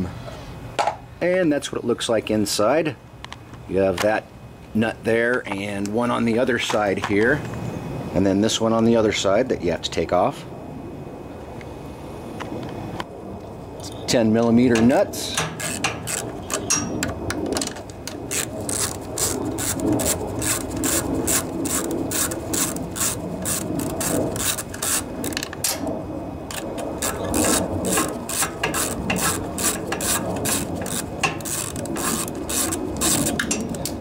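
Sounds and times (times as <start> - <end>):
ratchet wrench clicking: 15.4 - 17.0, 18.1 - 25.4, 26.5 - 34.0.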